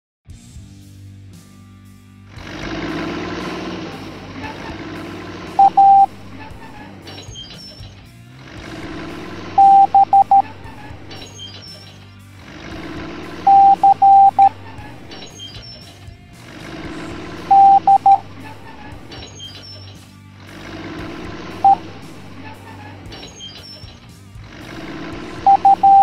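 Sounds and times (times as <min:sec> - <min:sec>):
morse code beeps: 0:05.6 - 0:06.6, 0:09.6 - 0:11.5, 0:13.4 - 0:15.8, 0:17.5 - 0:18.4, 0:21.6 - 0:22.1, 0:25.4 - 0:26.0.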